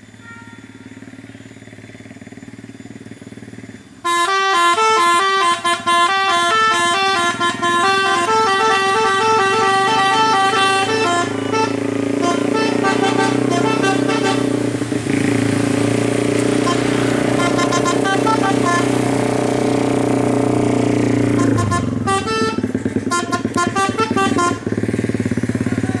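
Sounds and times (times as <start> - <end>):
vehicle engines approaching: 0.0 - 26.0
multi-tone horn playing tune: 4.0 - 15.7, 16.4 - 20.4, 21.2 - 24.7.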